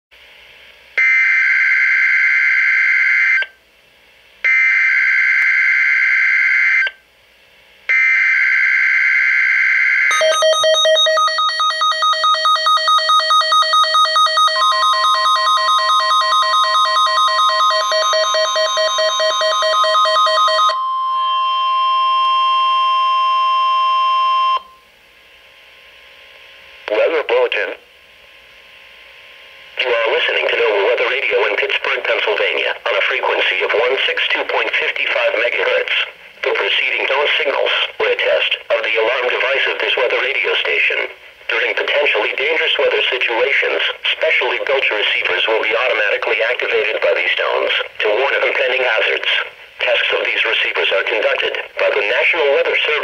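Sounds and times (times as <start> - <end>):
steady warning alarm tone: 1.0 - 3.6, 4.4 - 7.0, 7.9 - 24.9
alarm beeping rapidly: 4.5 - 6.9, 7.9 - 24.8.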